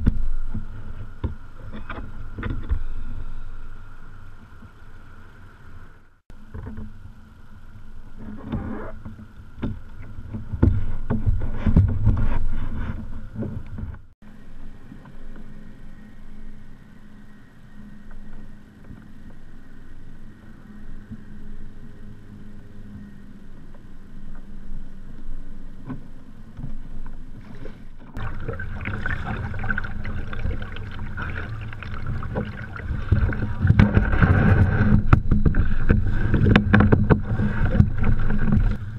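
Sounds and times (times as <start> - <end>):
wind on microphone: 0.0 - 15.6, 26.6 - 38.9
paddle blades splashing: 25.8 - 38.9
water sloshing against kayak hull: 25.8 - 38.9.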